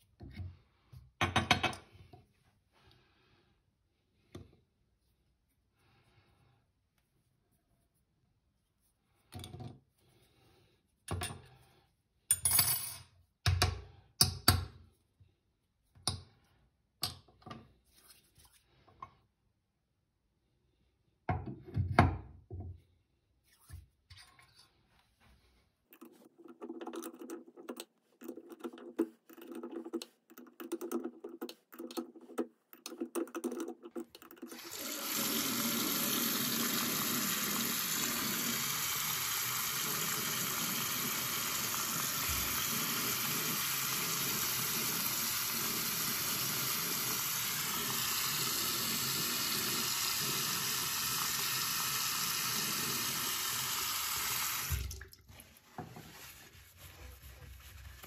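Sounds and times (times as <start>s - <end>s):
water running into basin: 25.9s - 58.0s
small tool clicking and knocking: 26.0s - 34.5s.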